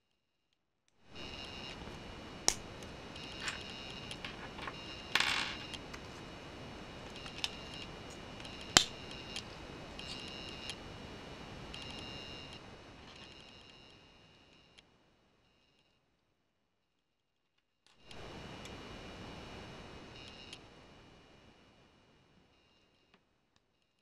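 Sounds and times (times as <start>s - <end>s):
steady hiss: 1.1s - 14.6s, 18.1s - 22.4s.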